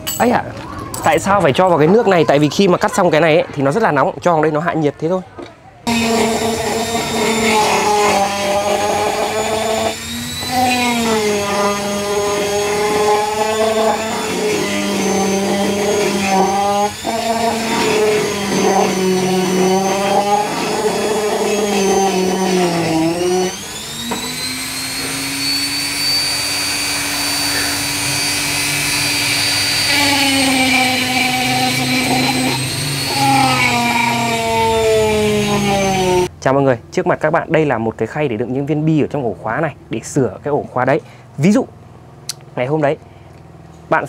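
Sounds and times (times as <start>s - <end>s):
key-cutting machine cutting metal: 5.9s - 36.3s.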